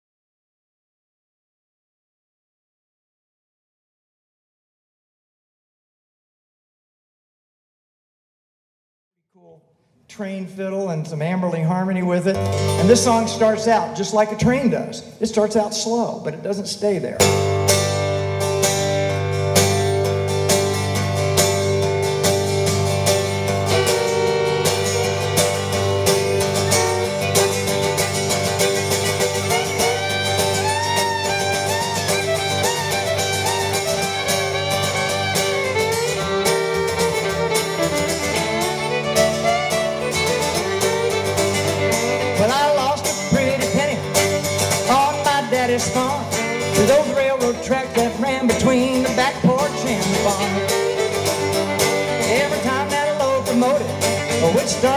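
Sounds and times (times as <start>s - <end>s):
acoustic guitar: 11.1s - 54.9s
fiddle sliding between notes: 17.4s - 54.9s.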